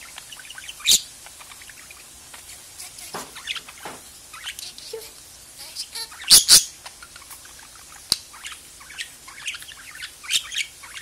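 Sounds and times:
budgerigar chirping and warbling: 0.0s - 11.0s
loud sharp bird calls: 5.8s - 11.0s.

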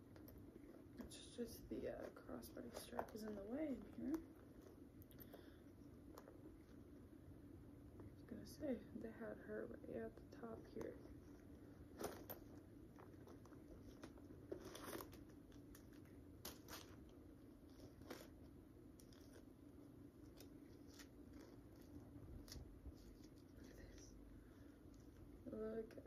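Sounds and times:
paper stuffing rustling: 11.3s - 17.1s.

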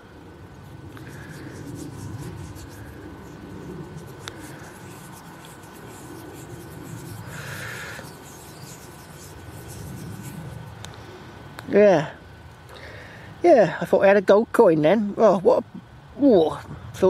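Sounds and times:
fingers rubbing grit on coin: 0.6s - 10.8s.

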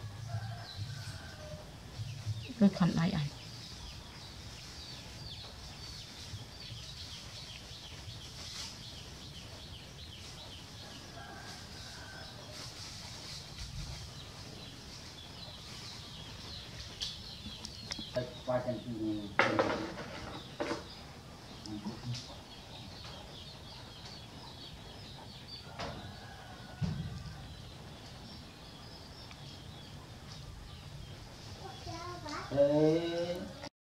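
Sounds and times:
small birds chirping: 0.0s - 33.7s
soft low thump: 26.7s - 27.4s.

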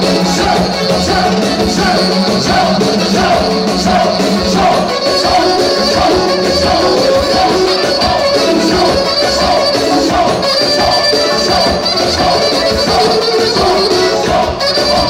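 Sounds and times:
regular percussion hits: 0.0s - 15.0s
wavering melody: 0.0s - 15.0s.

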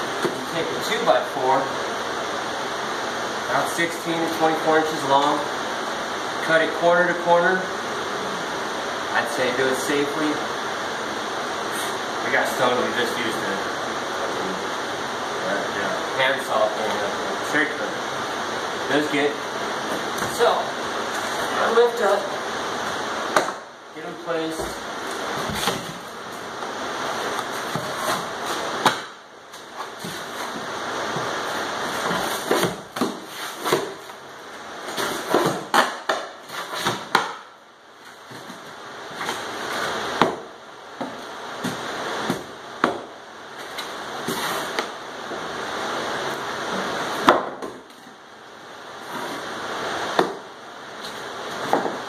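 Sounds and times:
sharp cracks of wood and steel: 35.2s - 37.5s.

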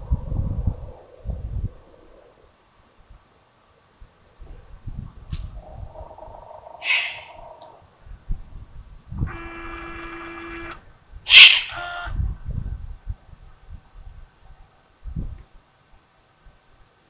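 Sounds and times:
young owl hissing calls: 6.6s - 7.8s, 9.3s - 12.1s.

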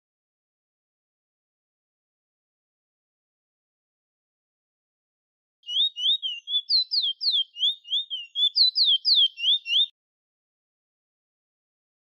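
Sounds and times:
finch singing high whistled notes: 5.6s - 9.9s.

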